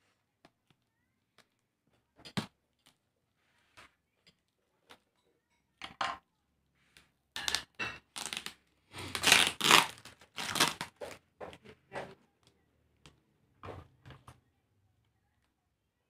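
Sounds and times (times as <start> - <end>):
tape and plastic tearing: 7.4 - 11.2.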